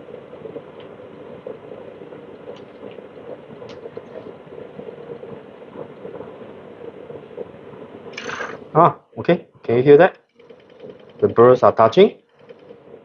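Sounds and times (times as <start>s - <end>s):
faint ticks: 10.0s - 13.0s.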